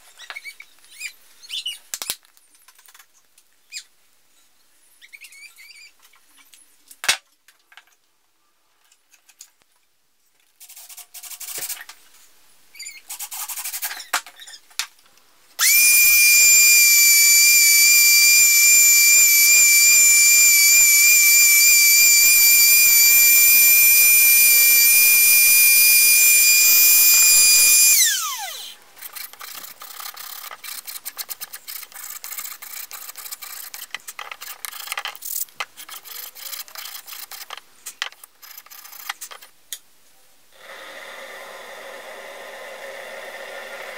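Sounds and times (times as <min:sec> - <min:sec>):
router whining: 0:15.6 - 0:28.8, 0:40.6 - 0:43.9.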